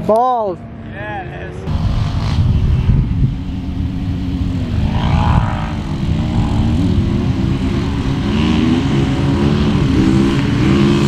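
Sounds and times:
off-road vehicle engines: 0:00.0 - 0:11.0
heavy low rumble: 0:01.7 - 0:10.2.

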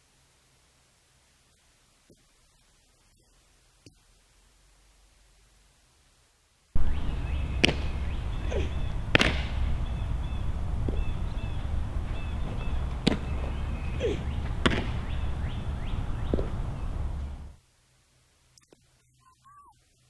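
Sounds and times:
birds chirping: 0:06.8 - 0:17.6, 0:18.6 - 0:20.0
wind rumble on microphone: 0:06.8 - 0:17.6
softball smacking into leather mitt: 0:07.6 - 0:09.7, 0:10.8 - 0:11.2, 0:12.5 - 0:13.8, 0:14.4 - 0:15.3, 0:16.2 - 0:16.6.

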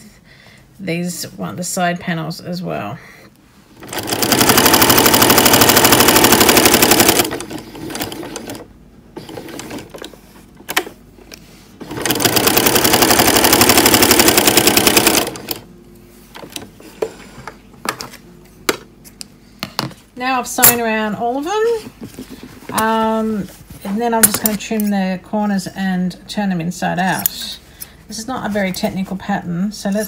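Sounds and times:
sewing machine stitching: 0:03.8 - 0:10.9, 0:11.8 - 0:15.6.

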